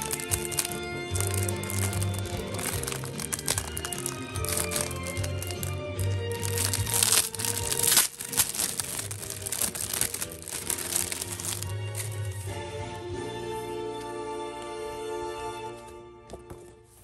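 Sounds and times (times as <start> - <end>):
cellophane crinkling: 0.0 - 12.6
background music: 0.0 - 17.0.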